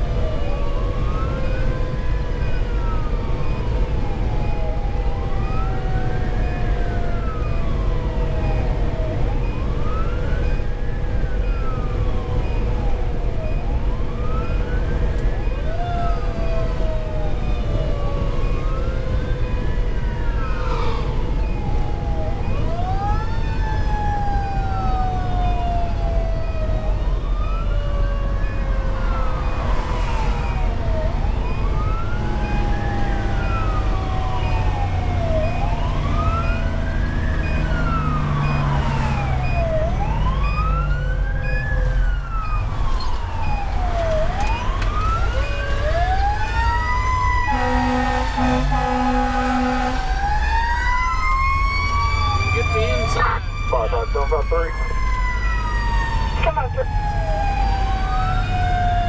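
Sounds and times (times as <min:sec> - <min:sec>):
fire engine siren wailing: 0:00.0 - 0:59.0
lower siren tone sliding down: 0:00.0 - 0:59.0
diesel engine drone: 0:16.2 - 0:50.4, 0:51.2 - 0:59.0
horn blasting: 0:47.5 - 0:50.1.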